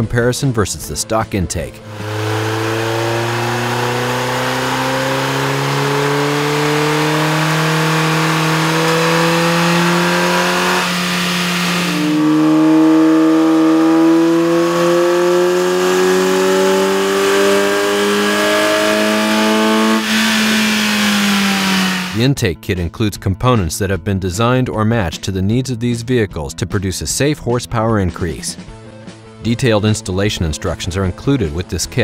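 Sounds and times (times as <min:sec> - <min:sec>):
car engine revving on dynamometer: 0:01.8 - 0:22.2.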